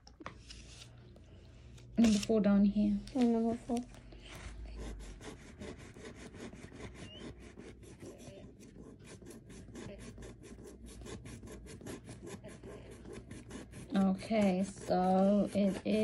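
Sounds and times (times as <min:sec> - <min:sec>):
fingernails scratching plastic: 0:05.2 - 0:16.0.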